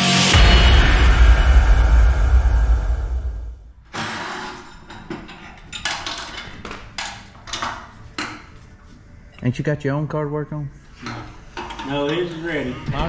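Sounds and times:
intro music: 0.0s - 3.8s.

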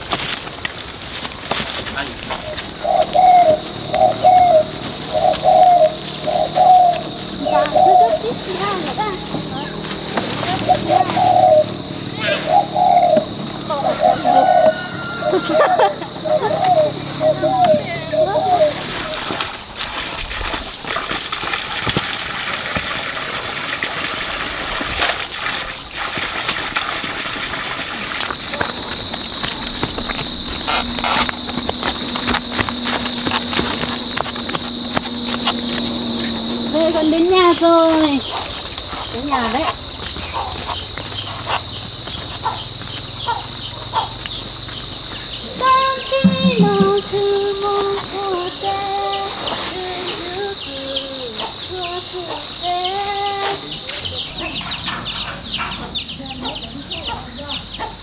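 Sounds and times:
footsteps on path: 0.0s - 11.8s, 28.3s - 48.1s
insect drone: 0.0s - 58.0s
bird chirping: 2.0s - 19.2s, 48.5s - 58.0s
running water rushing: 18.7s - 30.0s
person singing long notes: 45.5s - 53.7s.

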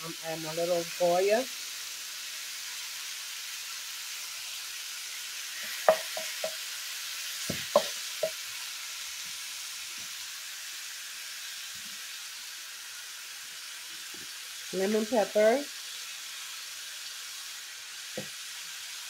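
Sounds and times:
meat sizzling in a skillet: 0.0s - 19.0s
wooden spoon knocking on pan: 5.6s - 6.6s, 7.4s - 8.4s.

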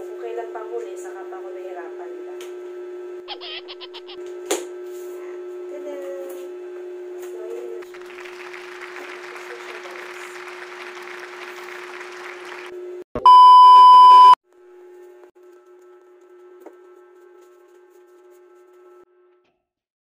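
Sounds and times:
low hum with hiss: 0.0s - 13.0s
test-tone beep: 13.2s - 14.4s.

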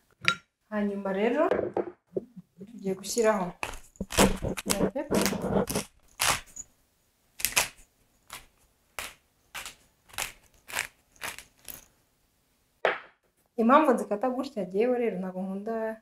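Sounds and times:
pepper mill grinding: 7.4s - 11.9s.

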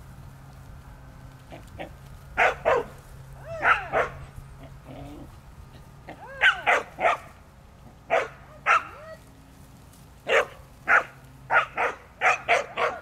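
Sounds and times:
dog barking: 2.4s - 4.2s, 6.2s - 7.4s, 8.1s - 9.2s, 10.3s - 13.0s.

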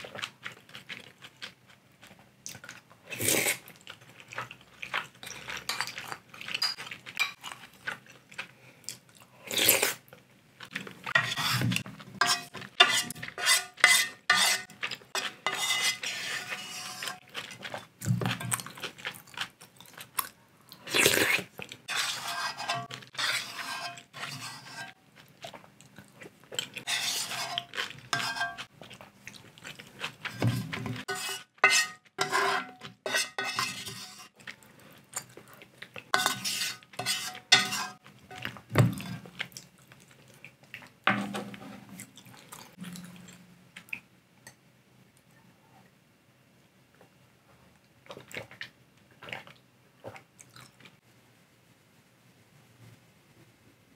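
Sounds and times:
eating sounds: 0.0s - 11.9s, 16.0s - 22.2s, 22.8s - 31.1s, 36.8s - 41.0s, 41.9s - 44.1s, 47.8s - 51.0s
wooden spoon scraping metal pot: 11.1s - 18.5s, 21.9s - 25.0s, 26.8s - 28.7s, 30.2s - 34.4s, 36.1s - 39.3s.

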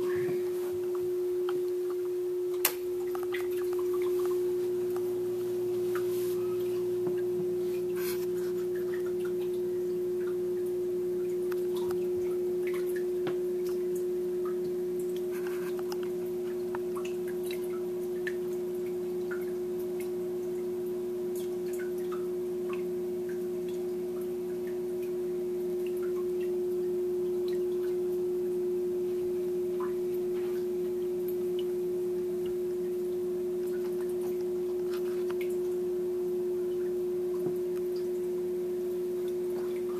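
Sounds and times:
aquarium pump humming: 0.0s - 39.9s.

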